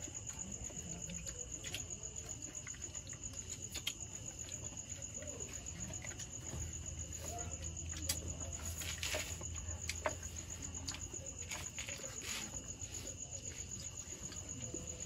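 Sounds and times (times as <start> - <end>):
crickets chirping: 0.0 - 15.0.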